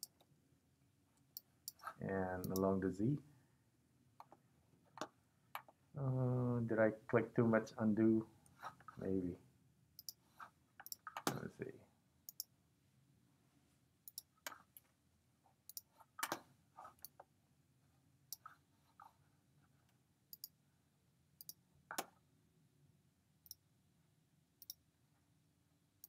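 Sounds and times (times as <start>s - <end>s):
quiet room hum: 0.0s - 26.0s
computer mouse clicks: 1.2s - 2.7s, 10.0s - 10.2s, 10.8s - 11.4s, 14.1s - 14.9s, 15.7s - 16.4s, 21.4s - 22.2s, 24.6s - 24.8s.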